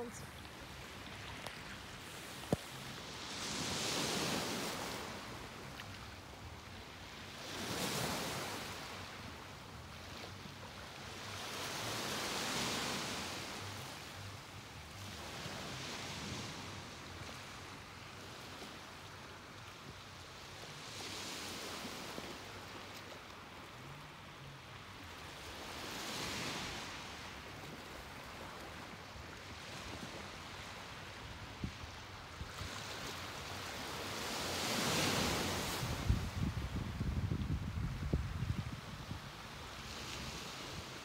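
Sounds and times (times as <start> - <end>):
ocean waves washing ashore: 0.0 - 41.0
wind rumbling on microphone: 34.6 - 41.0.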